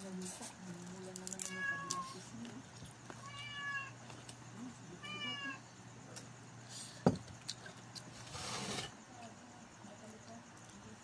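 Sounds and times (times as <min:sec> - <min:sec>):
cat meowing: 0:01.4 - 0:02.2, 0:03.2 - 0:04.0, 0:05.0 - 0:05.6.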